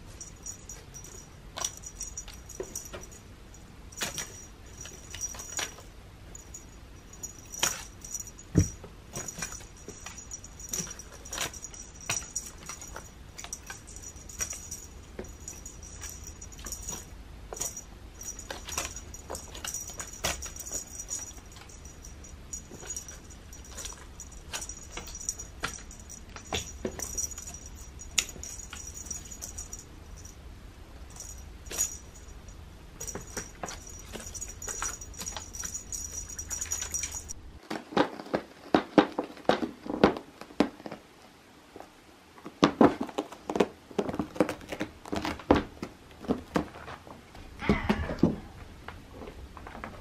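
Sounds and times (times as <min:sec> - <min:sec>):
toy jingling and rustling: 0:00.0 - 0:30.4, 0:31.0 - 0:37.6.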